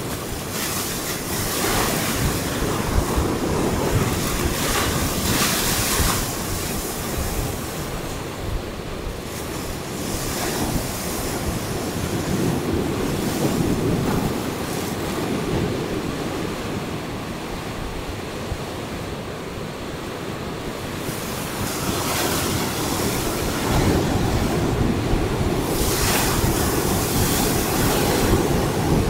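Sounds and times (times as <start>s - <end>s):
ocean surf breaking on rocks: 0.0s - 29.0s.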